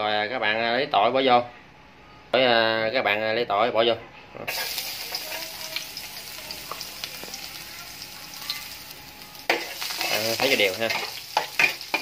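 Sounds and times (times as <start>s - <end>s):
garlic sizzling in hot oil: 4.5s - 12.0s.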